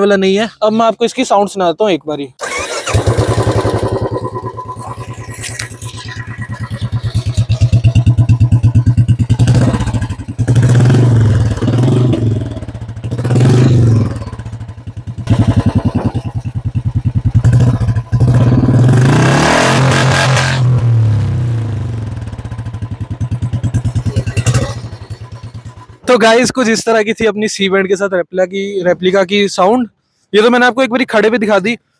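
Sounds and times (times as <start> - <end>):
motorcycle engine idling and revving: 2.4 - 26.6.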